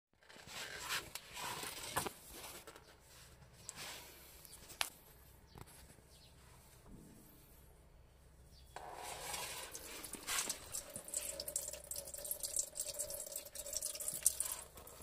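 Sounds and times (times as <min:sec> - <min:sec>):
gloved hand rustling and scraping: 0:00.2 - 0:10.8.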